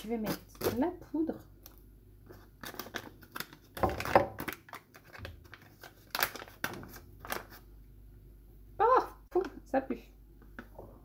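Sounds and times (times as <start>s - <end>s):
sachet crinkling and tearing: 2.3s - 7.6s.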